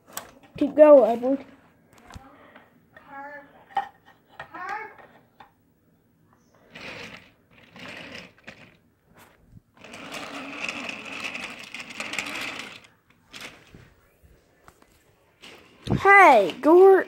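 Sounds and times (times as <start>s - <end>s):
toy train motor whirring: 6.6s - 8.8s, 9.8s - 13.8s.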